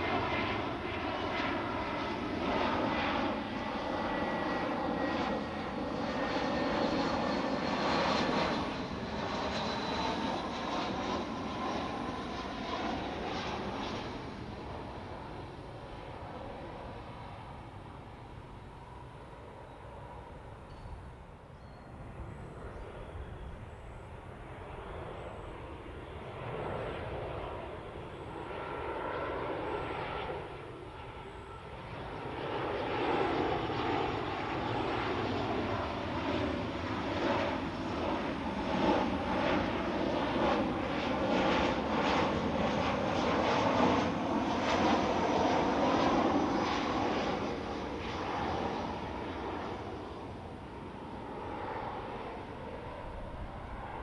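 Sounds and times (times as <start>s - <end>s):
airliner engines rumbling: 0.0s - 54.0s.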